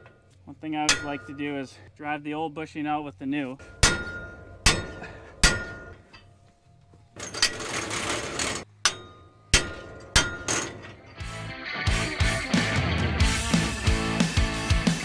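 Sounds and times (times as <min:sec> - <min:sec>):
hammer striking metal: 0:00.8 - 0:01.6, 0:03.6 - 0:06.3, 0:08.8 - 0:11.2
music: 0:11.1 - 0:15.0.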